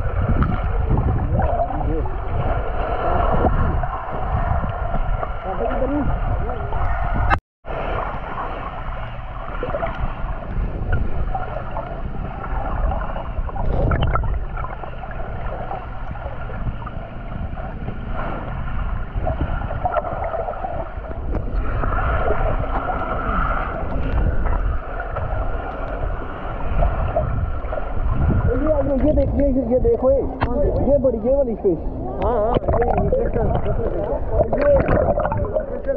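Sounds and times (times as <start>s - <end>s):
muffled underwater water rushing: 0.0s - 35.9s
steady low rumble: 0.0s - 35.9s.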